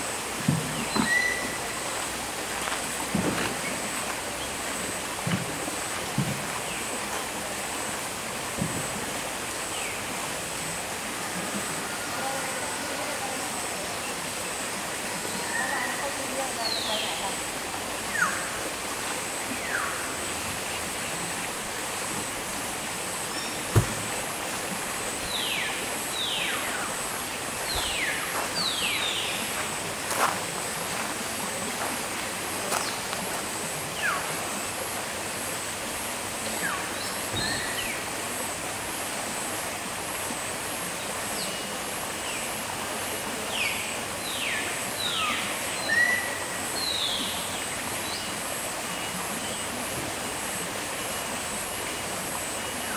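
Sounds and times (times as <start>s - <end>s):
birds whistling falling notes: 0.7s - 1.6s.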